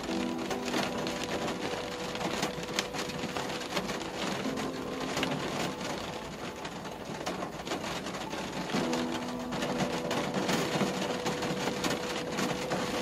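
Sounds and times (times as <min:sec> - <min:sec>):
rain hitting car windscreen: 0:00.0 - 0:13.0.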